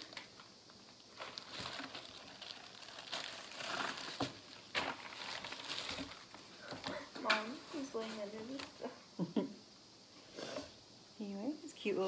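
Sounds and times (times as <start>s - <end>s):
packaging crinkling and rustling: 0.0s - 8.8s.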